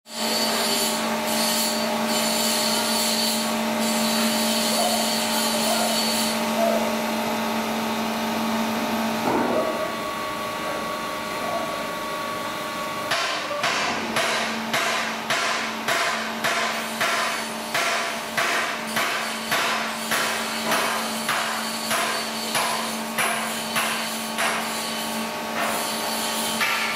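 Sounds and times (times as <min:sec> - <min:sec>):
sharp metal knocks: 0:13.1 - 0:24.7.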